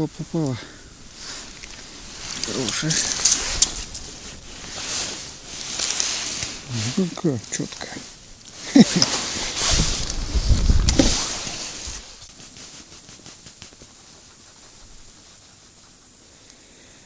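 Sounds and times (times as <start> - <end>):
close rustling and handling: 0.0 - 16.2
soft hiss of wind: 0.0 - 17.0.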